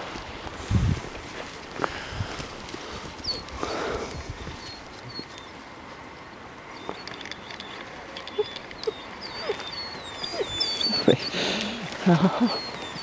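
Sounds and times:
rustle of dry grass: 0.0s - 13.0s
puppies whining: 3.2s - 5.6s, 6.7s - 13.0s.

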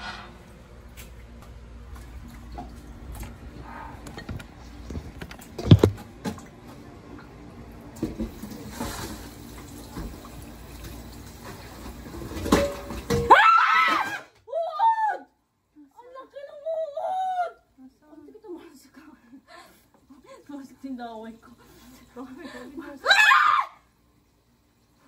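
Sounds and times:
tap running into a sink: 8.0s - 11.9s
woman shrieking: 13.3s - 15.3s, 23.0s - 23.8s.

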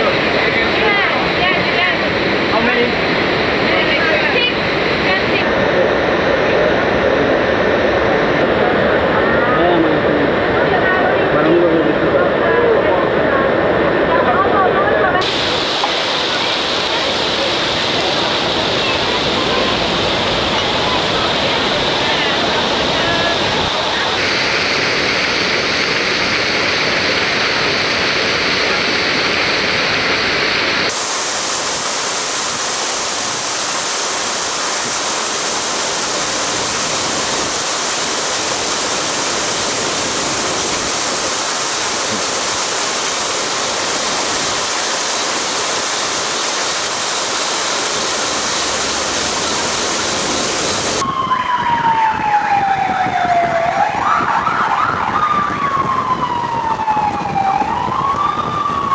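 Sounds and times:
loud steady hiss: 15.2s - 51.0s
siren wail: 50.8s - 58.9s.

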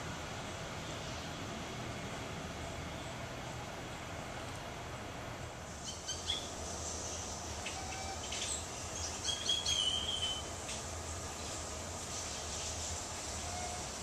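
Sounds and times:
steady low hum: 0.0s - 14.0s
birds chirping: 5.7s - 13.9s.

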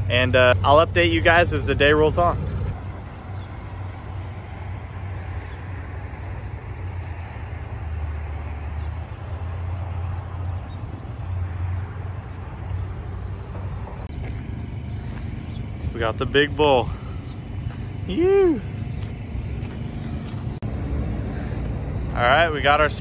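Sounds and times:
truck engine droning: 0.0s - 23.0s.

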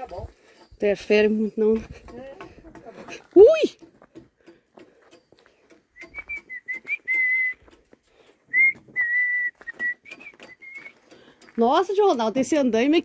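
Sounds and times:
person whistling a tune: 5.9s - 7.8s, 8.5s - 11.0s.

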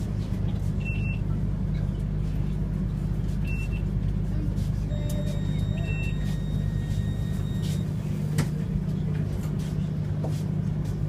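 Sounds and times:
tram interior hum: 0.0s - 11.0s.

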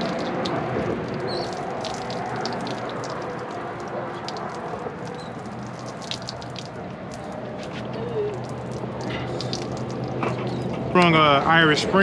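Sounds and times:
water splashing on wet concrete: 0.0s - 11.2s.

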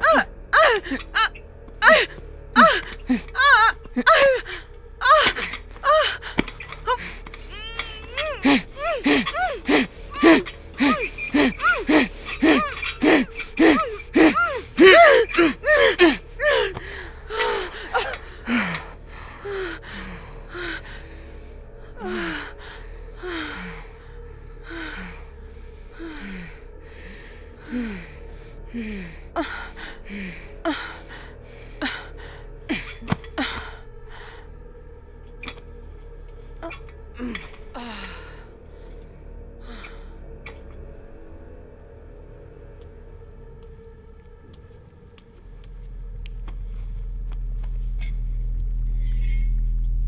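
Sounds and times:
woman sobbing and gasping: 0.0s - 34.5s.

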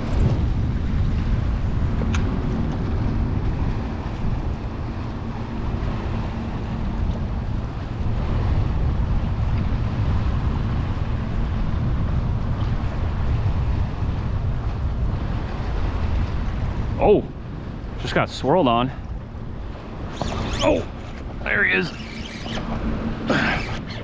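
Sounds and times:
wind noise on microphone: 0.0s - 24.0s
water lapping at boat hull: 12.4s - 24.0s.

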